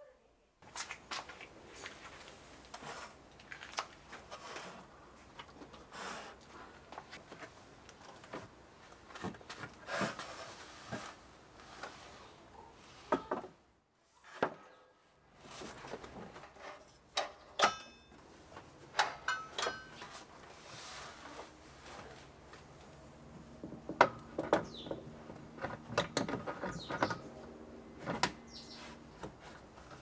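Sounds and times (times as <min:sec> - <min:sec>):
wooden knocks and bumps: 0:23.6 - 0:27.2.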